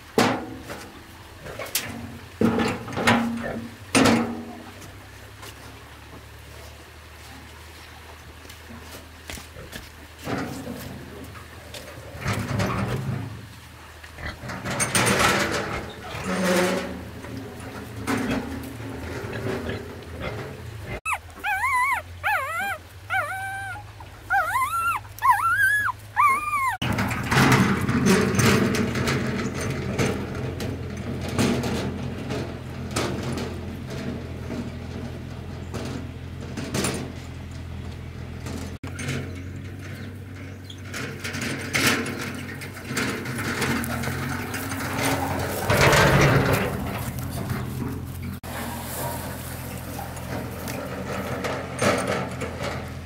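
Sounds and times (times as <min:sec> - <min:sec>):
dog whimpering: 0:21.0 - 0:26.8.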